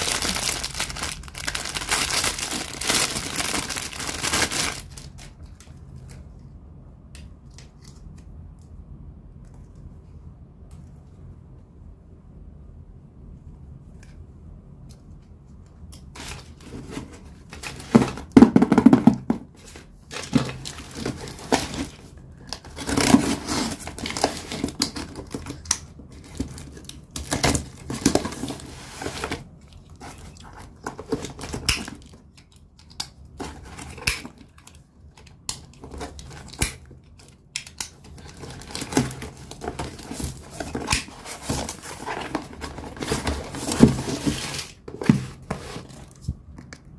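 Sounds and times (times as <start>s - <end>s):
cardboard rustling: 0.0s - 5.6s, 16.2s - 31.7s, 38.1s - 46.5s.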